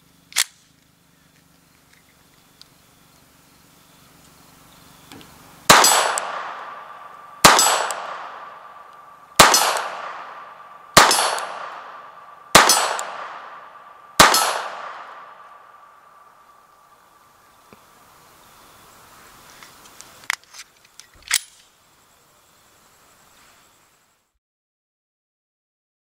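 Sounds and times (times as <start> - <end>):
pistol shots with echo: 5.7 - 16.4.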